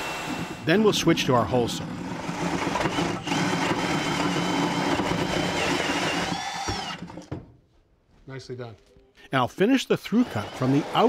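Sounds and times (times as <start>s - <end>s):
hole saw drill whining: 0.0s - 7.3s, 10.1s - 11.0s.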